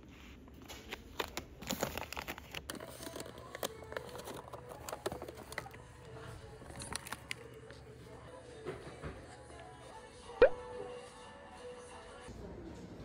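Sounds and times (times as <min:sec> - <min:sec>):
plastic snack pouches crinkling: 0:00.6 - 0:08.0.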